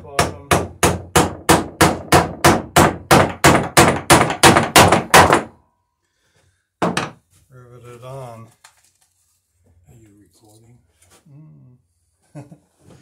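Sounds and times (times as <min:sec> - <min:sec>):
hammer striking wood: 0:00.0 - 0:05.6, 0:06.8 - 0:07.2.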